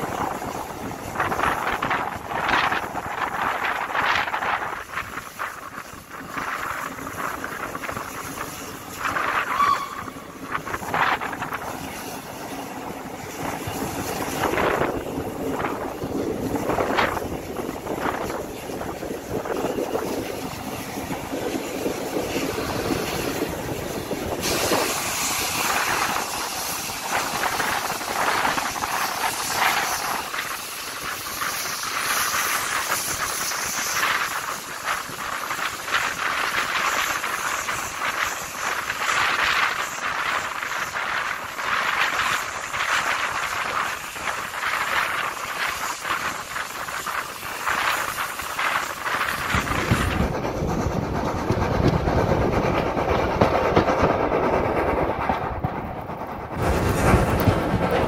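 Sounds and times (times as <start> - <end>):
rushing air and rolling wheels: 0.0 - 58.0
train rattles: 0.0 - 58.0
deep rumble: 49.0 - 58.0.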